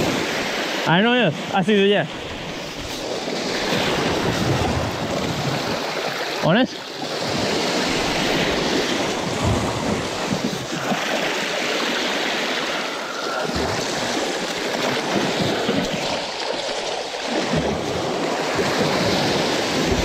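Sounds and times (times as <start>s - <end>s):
sea surf on rocky shore: 0.0s - 20.0s
wind buffeting microphone: 2.3s - 5.9s, 7.1s - 11.1s.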